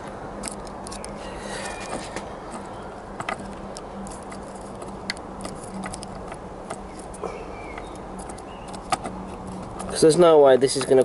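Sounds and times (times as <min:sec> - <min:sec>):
steady low hum: 0:00.0 - 0:11.0
fingers clicking and tapping plastic: 0:07.7 - 0:11.0.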